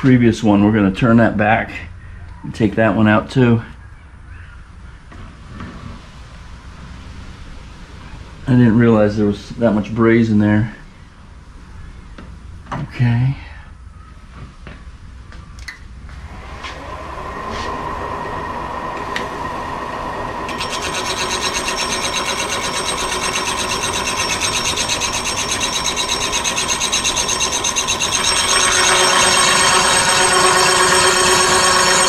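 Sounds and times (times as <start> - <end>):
milling machine spindle spinning up: 16.8 - 32.0
milling cutter rasping through metal: 20.5 - 32.0.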